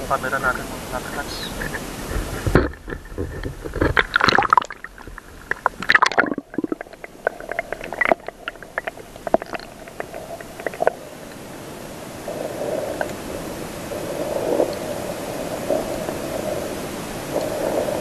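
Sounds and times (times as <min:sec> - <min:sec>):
faint steady hum: 0:00.0 - 0:18.0
muffled underwater water moving: 0:00.0 - 0:18.0
rush of water: 0:00.0 - 0:18.0
sharp clicks and crackles: 0:02.1 - 0:11.4.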